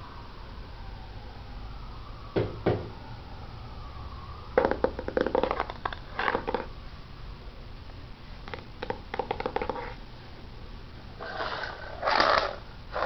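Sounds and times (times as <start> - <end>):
faint wavering whine: 0.0 - 8.5, 9.6 - 13.0
soft knocks: 2.4 - 3.0.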